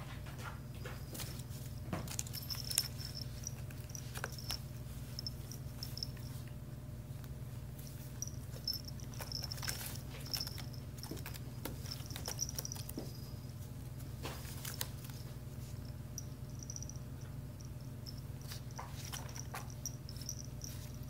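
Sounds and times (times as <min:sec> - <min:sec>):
steady low hum: 0:00.0 - 0:21.0
claws scratching on wicker: 0:01.1 - 0:06.3, 0:07.8 - 0:13.4, 0:14.0 - 0:15.8.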